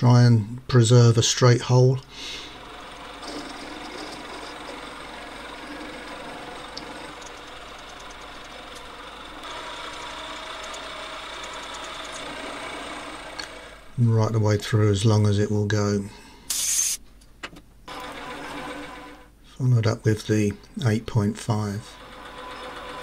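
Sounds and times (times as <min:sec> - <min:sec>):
lathe motor and drill cutting: 0:02.4 - 0:14.0, 0:17.9 - 0:19.3, 0:21.8 - 0:23.0.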